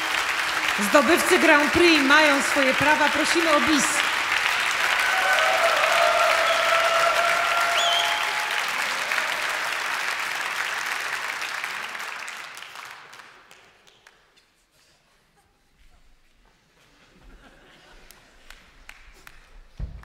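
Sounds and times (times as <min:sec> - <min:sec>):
audience applauding: 0:00.0 - 0:14.3, 0:18.0 - 0:20.0.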